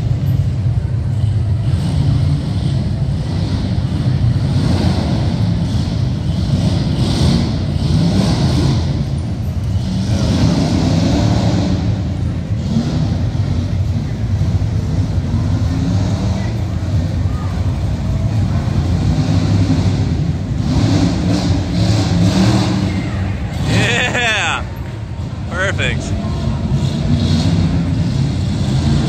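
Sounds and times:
truck engine revving: 0:00.0 - 0:29.0.

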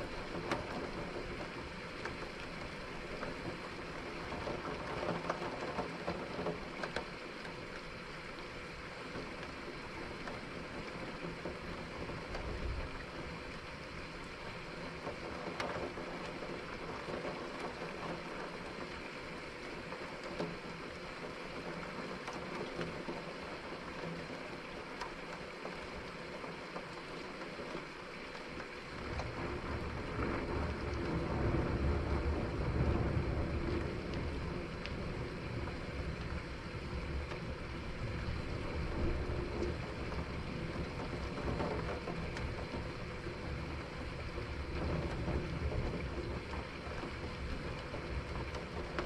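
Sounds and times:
rain drops ticking: 0:00.0 - 0:49.0
steady rain: 0:00.0 - 0:49.0
low thunder rumble: 0:29.3 - 0:37.3.

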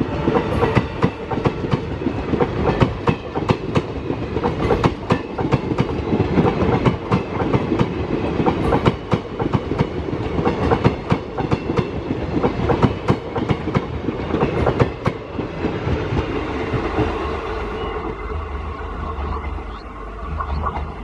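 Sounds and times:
train rumble: 0:00.0 - 0:21.0.

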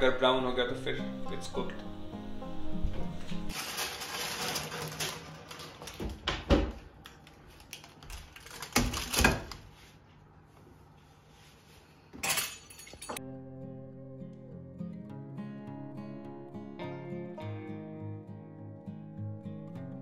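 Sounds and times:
music: 0:00.0 - 0:03.6, 0:13.2 - 0:20.0.

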